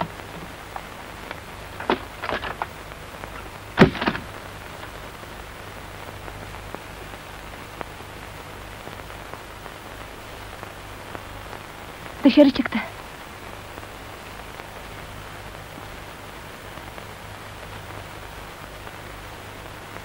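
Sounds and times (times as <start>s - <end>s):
rain hissing: 0.0s - 20.0s
loud thump: 3.8s - 4.3s.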